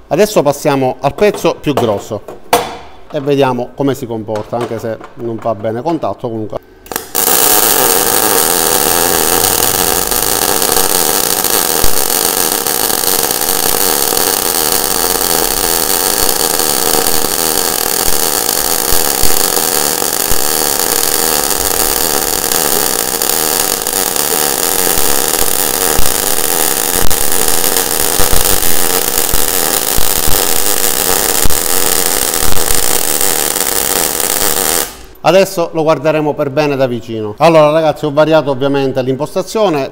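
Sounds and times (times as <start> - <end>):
welding arc crackling and popping: 6.9 - 35.2.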